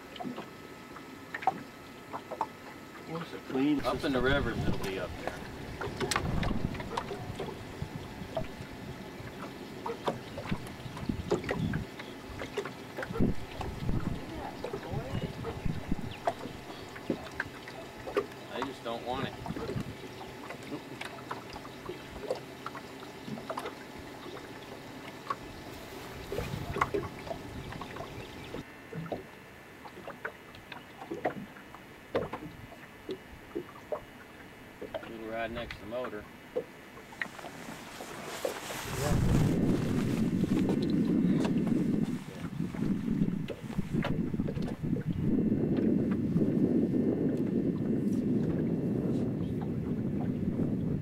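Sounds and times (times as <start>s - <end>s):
waves lapping against boat hull: 0.0s - 51.0s
wind on microphone: 3.8s - 20.8s, 25.5s - 28.7s, 37.2s - 51.0s
small splashes and gurgles: 4.6s - 35.2s.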